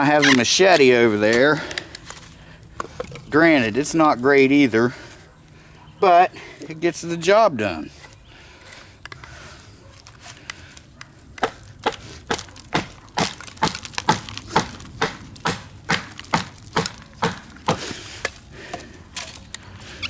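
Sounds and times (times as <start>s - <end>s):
hatchet striking wood: 11.4s - 18.4s.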